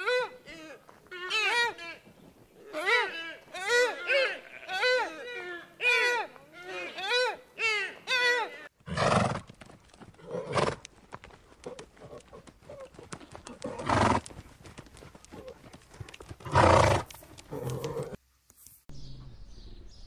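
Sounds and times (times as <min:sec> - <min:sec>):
faint clicks: 0:17.0 - 0:18.8.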